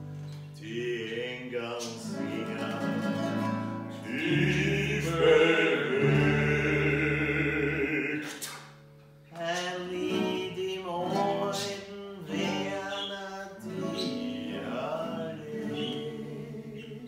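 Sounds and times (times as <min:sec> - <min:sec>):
strummed classical guitar: 0:00.0 - 0:17.0
men singing in harmony: 0:00.6 - 0:08.4, 0:09.4 - 0:17.0
tenor ukulele: 0:02.0 - 0:17.0
bass ukulele: 0:02.1 - 0:08.2.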